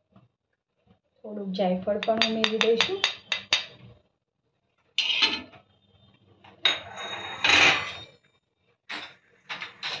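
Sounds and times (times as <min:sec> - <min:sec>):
metal spoon scraping on pan: 0:05.0 - 0:05.6, 0:06.6 - 0:08.2.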